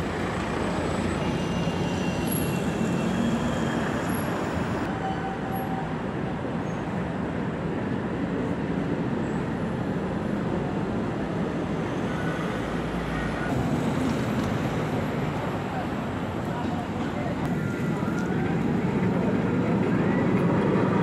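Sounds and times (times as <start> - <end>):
bus engine rumble: 0.0 - 4.9, 9.6 - 21.0
bus passing: 0.0 - 21.0
street traffic noise: 0.0 - 21.0
tram approaching on tracks: 0.0 - 21.0.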